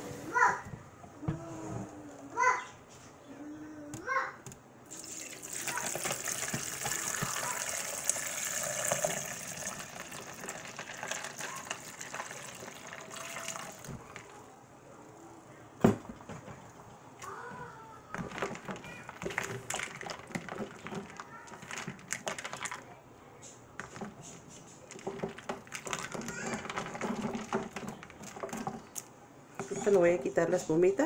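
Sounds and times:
water pouring into a pitcher: 4.9 - 14.4.

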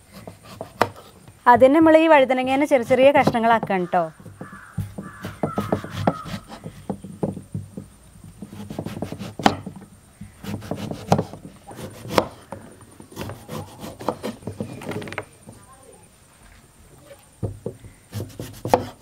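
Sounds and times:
knife chopping on wooden board: 0.2 - 1.0, 4.3 - 7.4, 8.4 - 12.4, 13.2 - 14.8, 18.1 - 19.0.

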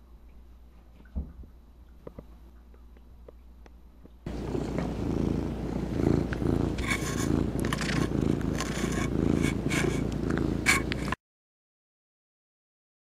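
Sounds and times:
cat purring: 4.3 - 11.2.

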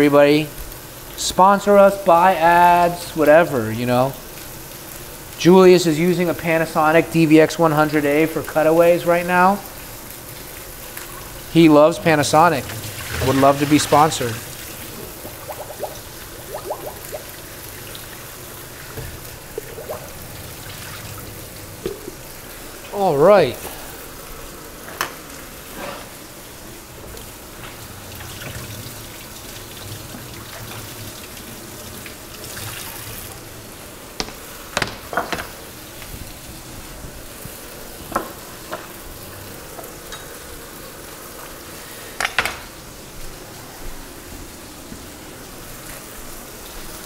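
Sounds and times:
steaks sizzling in skillet: 0.5 - 47.0.

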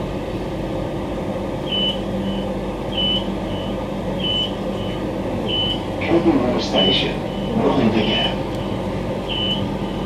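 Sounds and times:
train equipment hum: 0.0 - 10.0
electronic warning beeps: 1.6 - 5.9, 6.6 - 10.0.

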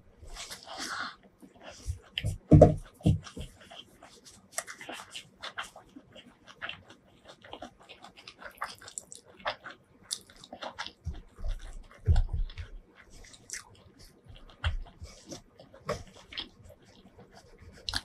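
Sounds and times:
fingers squishing rice: 0.3 - 18.0
wet chewing: 0.4 - 18.0
dull low thumps: 11.1 - 12.8.

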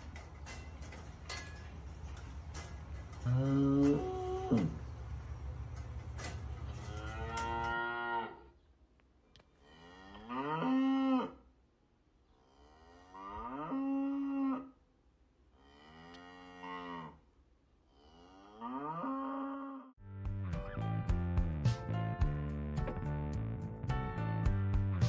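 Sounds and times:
cows mooing: 3.2 - 4.8, 6.6 - 8.5, 9.6 - 11.4, 12.4 - 14.8, 15.6 - 17.2, 17.9 - 19.9.

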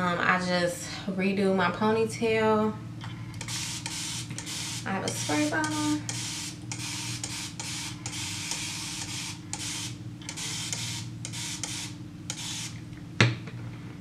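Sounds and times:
steady low hum: 0.0 - 14.0
spray bottle hissing: 3.4 - 12.8.

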